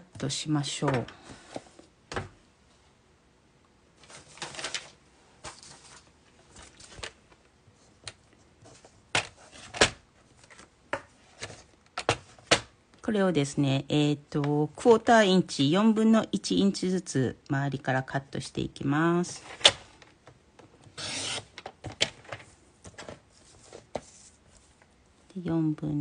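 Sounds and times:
paper rustle: 4.0s - 8.0s, 22.2s - 24.9s.

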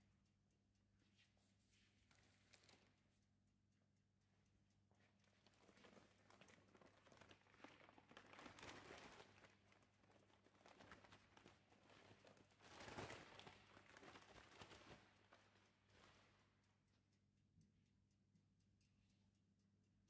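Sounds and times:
paper sack crinkling: 5.8s - 15.0s.

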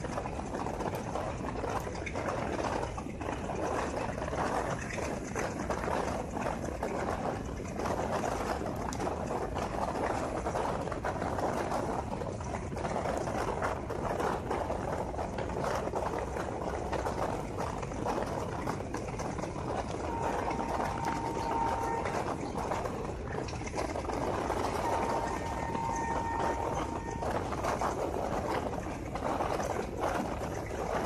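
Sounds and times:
rapid rattling clicks and knocks: 0.0s - 31.0s
train wheels rushing on rails: 0.0s - 31.0s
faint steady tone: 18.1s - 31.0s.

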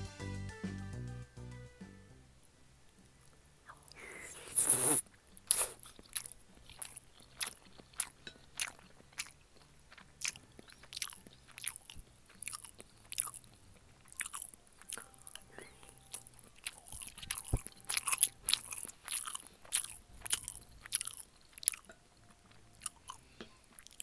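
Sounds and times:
spoon scooping eggs in bowl: 5.6s - 24.0s.

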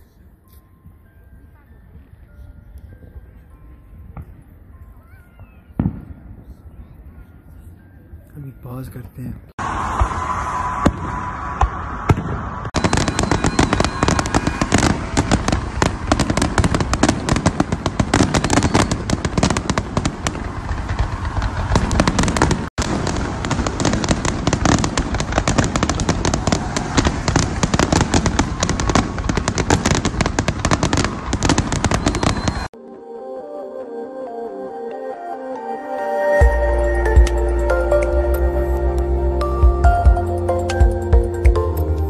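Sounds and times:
fireworks bursting and crackling: 5.4s - 6.6s, 9.2s - 32.8s.

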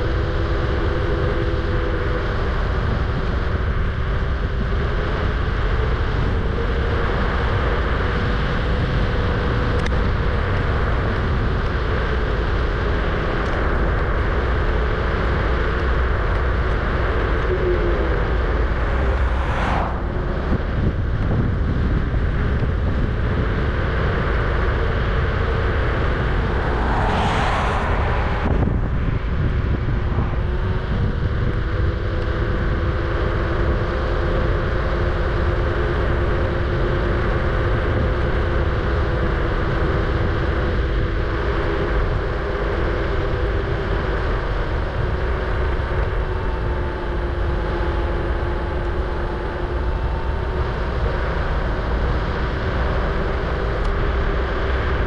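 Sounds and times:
scooter motor hum: 0.0s - 27.1s, 28.4s - 55.0s
wind and road noise: 0.0s - 55.0s
brief whooshes: 18.6s - 20.6s, 26.1s - 30.4s.

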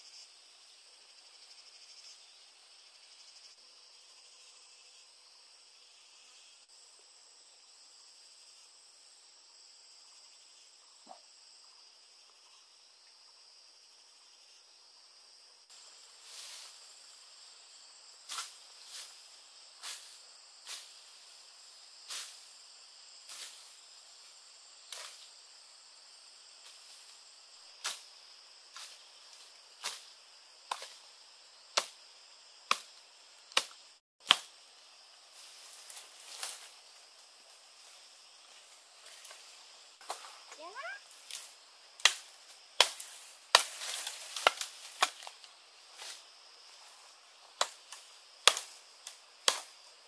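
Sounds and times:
insects droning: 0.0s - 50.0s
machete chopping branches: 24.9s - 25.2s, 30.7s - 31.0s, 31.7s - 32.0s, 32.7s - 34.6s, 40.0s - 40.4s, 41.2s - 46.2s, 47.5s - 49.8s.

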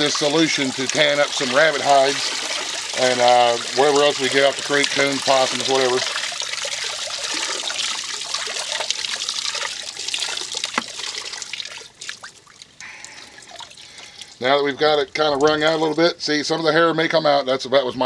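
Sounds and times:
liquid splashing into a tub: 0.0s - 16.0s
liquid dripping: 0.0s - 16.1s.

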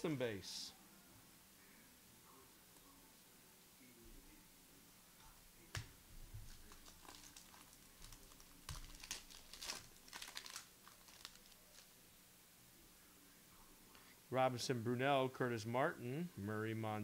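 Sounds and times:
cards and foil wrappers crinkling: 6.4s - 12.0s.

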